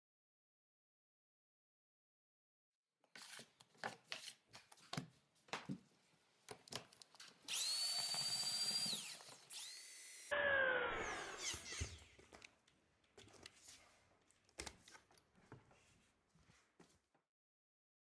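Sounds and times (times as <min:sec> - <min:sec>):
drill whining: 0:07.5 - 0:12.3.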